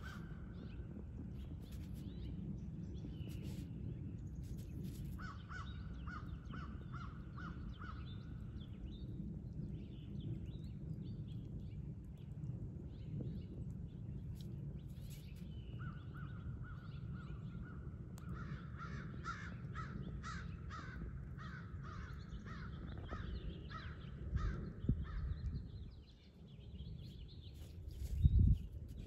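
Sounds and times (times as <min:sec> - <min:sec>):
steady low rumble: 0:00.0 - 0:29.0
birds harsh repeated calls: 0:18.3 - 0:25.5.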